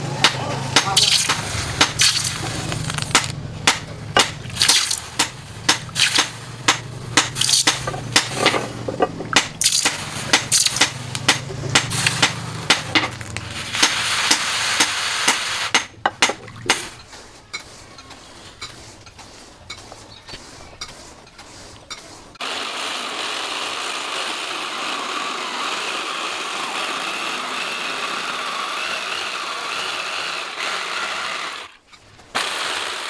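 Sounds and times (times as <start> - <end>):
sharp metal knocks: 0.2 - 2.4, 3.1 - 13.2, 13.8 - 16.9
water splashing and sloshing: 1.0 - 12.3, 16.1 - 22.4.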